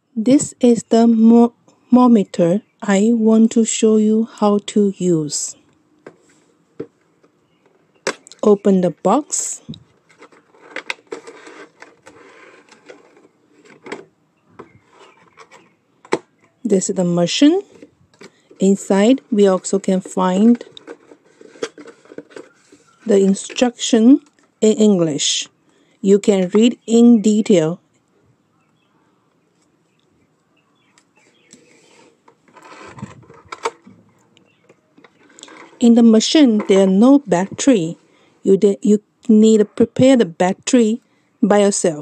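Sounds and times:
cardboard scraping and rustling: 9.9s - 16.4s, 17.6s - 23.6s, 31.2s - 34.0s.

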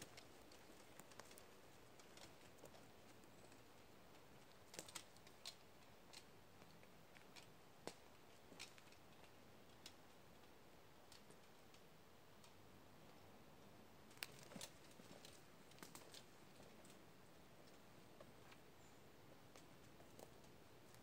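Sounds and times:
faint sharp clicks: 0.0s - 10.5s.

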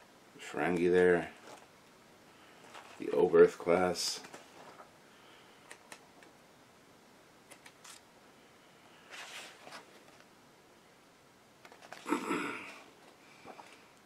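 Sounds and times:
rustle of flipping pages: 1.4s - 1.7s, 2.6s - 3.2s, 4.1s - 4.9s, 9.0s - 10.3s, 11.6s - 12.1s, 13.0s - 13.9s.

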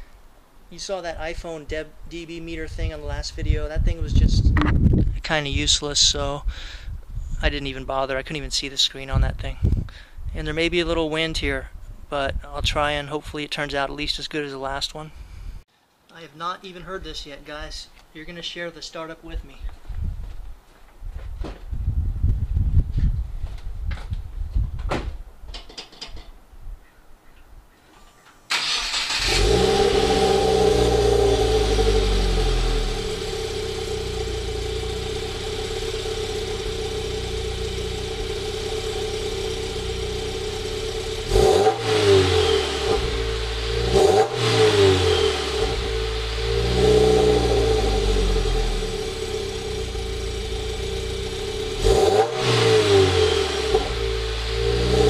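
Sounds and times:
car engine idling and revving: 28.8s - 55.0s.

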